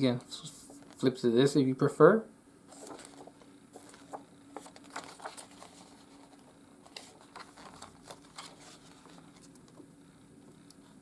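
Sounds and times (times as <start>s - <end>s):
faint steady hum: 0.0s - 11.0s
paper rustling: 2.7s - 9.6s.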